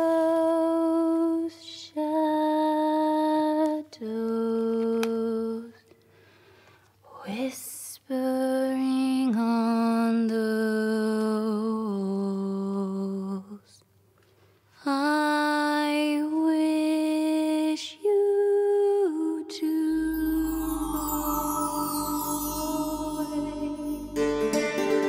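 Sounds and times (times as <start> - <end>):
woman humming slow melody: 19.6 - 24.6.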